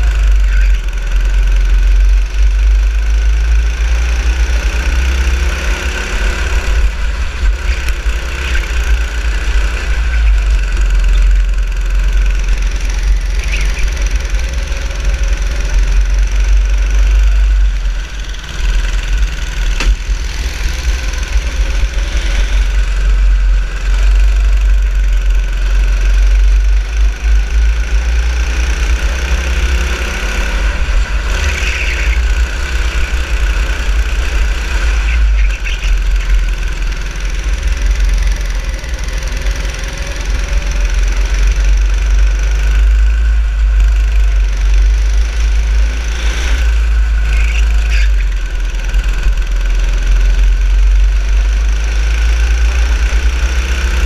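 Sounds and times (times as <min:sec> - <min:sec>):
go-kart engine revving: 0:00.0 - 0:54.0.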